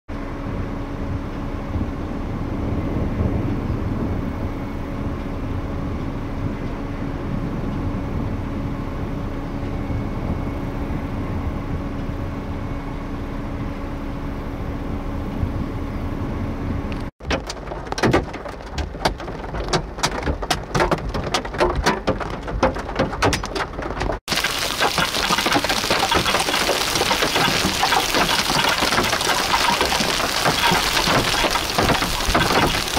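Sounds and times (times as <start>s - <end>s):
hailstones clattering: 17.2s - 32.9s.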